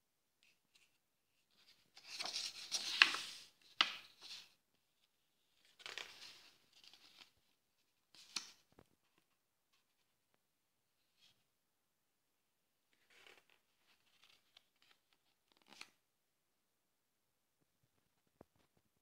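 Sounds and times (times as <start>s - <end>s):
book pages turning: 1.6s - 4.6s, 5.6s - 7.4s, 13.0s - 16.0s.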